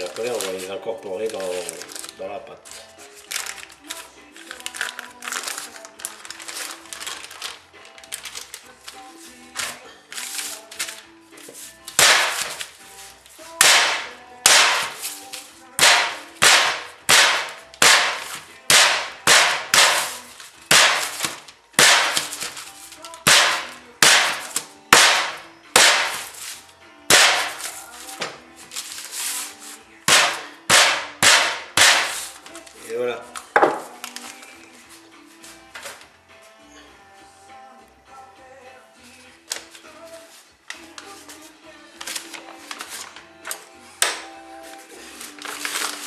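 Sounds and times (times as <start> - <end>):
rolling pin whacking butter: 11.9 - 12.7, 13.6 - 15.1, 15.8 - 22.6, 23.2 - 26.4, 27.1 - 28.4, 30.1 - 32.4.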